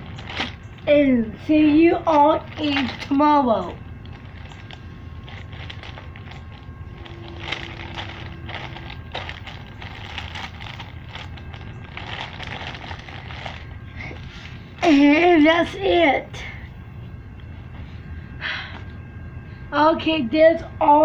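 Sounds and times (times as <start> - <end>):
plastic bag crinkling: 0.0 - 0.8, 1.6 - 15.4
low background rumble: 0.0 - 21.0.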